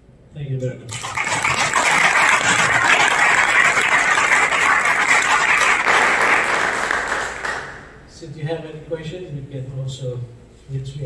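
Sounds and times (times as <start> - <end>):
audience applauding: 0.9 - 8.0.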